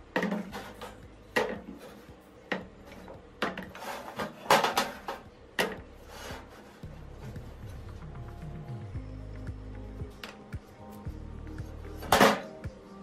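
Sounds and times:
pump parts clattering into plastic tray: 2.5s - 5.8s.

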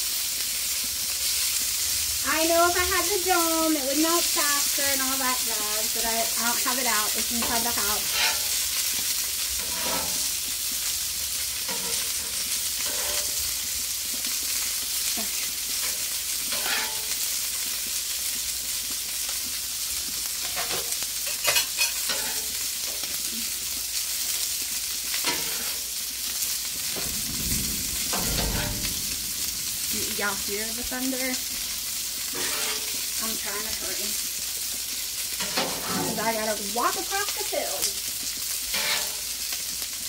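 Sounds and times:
food sizzling on griddle: 0.0s - 40.0s
metal spatula scraping griddle: 7.3s - 9.0s, 9.6s - 10.4s, 11.6s - 13.6s, 15.7s - 17.2s, 20.4s - 23.1s, 25.2s - 26.0s, 28.1s - 28.9s, 32.3s - 33.1s, 35.4s - 36.4s, 38.7s - 39.3s
thunder rumble: 26.7s - 31.8s.

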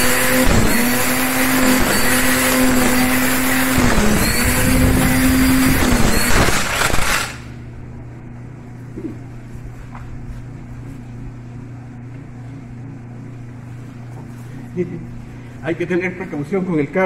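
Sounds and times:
string trimmer cutting grass: 0.0s - 7.6s.

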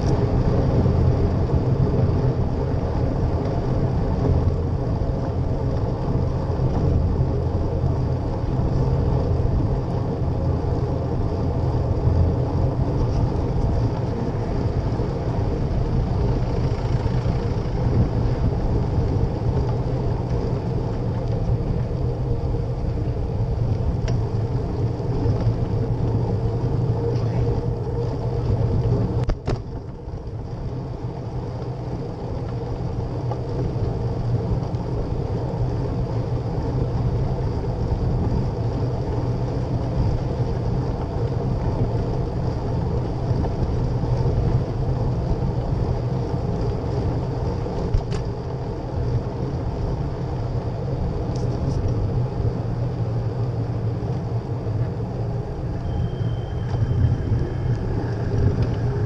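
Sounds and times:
wind on microphone: 0.0s - 31.2s, 32.2s - 59.0s
bicycle tyres on asphalt: 0.0s - 59.0s.

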